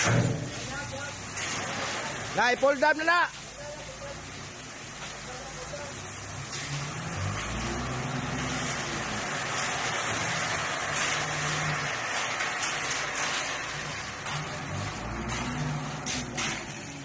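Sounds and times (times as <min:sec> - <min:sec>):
gravel pouring: 0:00.0 - 0:17.0
truck engine running: 0:06.1 - 0:17.0
shovel scraping gravel: 0:06.5 - 0:17.0.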